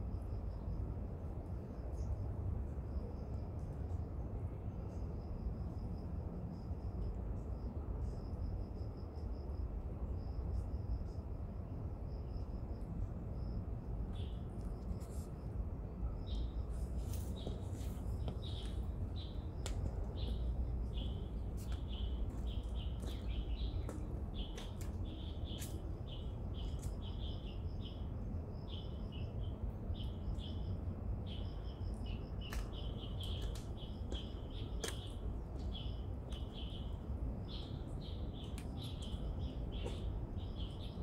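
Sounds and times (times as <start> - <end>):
constant low rumble: 0.0 - 41.0
small birds chirping: 16.3 - 41.0.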